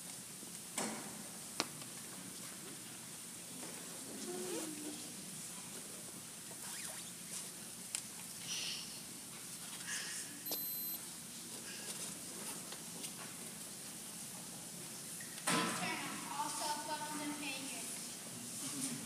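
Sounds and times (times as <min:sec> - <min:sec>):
shoes squeaking on gym floor: 0:06.6 - 0:07.3, 0:10.5 - 0:11.0.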